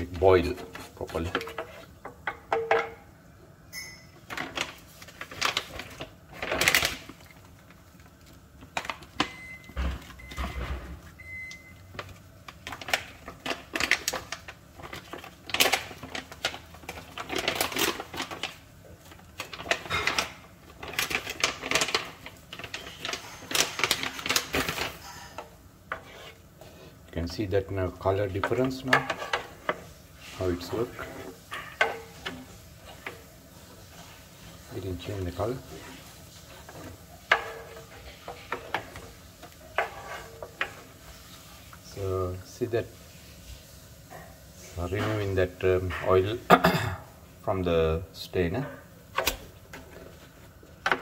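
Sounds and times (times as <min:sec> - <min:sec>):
wooden spoon scraping metal filter: 0:22.6 - 0:26.9, 0:33.9 - 0:41.4.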